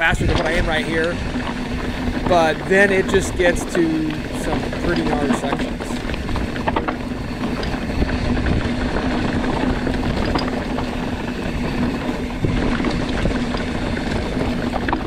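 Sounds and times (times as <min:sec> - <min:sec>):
bike tyres rattling over rock: 0:00.0 - 0:15.0
steady buzz: 0:00.0 - 0:15.0
wind on microphone: 0:00.0 - 0:15.0.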